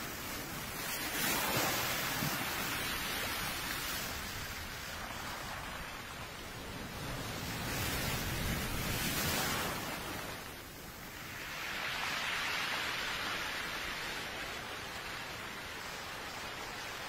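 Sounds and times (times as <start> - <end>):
sea surf washing on shore: 0.0 - 17.0.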